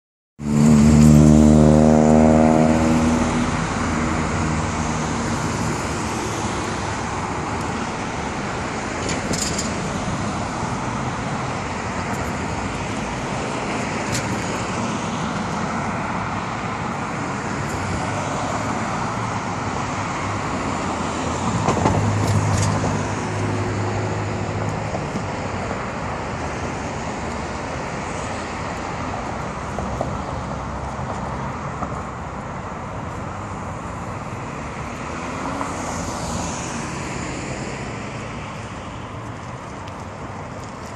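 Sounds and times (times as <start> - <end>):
vehicle passing: 0.4 - 7.1
street traffic noise: 0.4 - 40.9.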